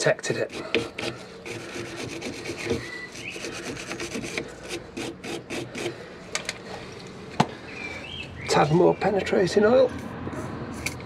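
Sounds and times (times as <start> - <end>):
wire brush scrubbing metal: 0.0 - 6.0.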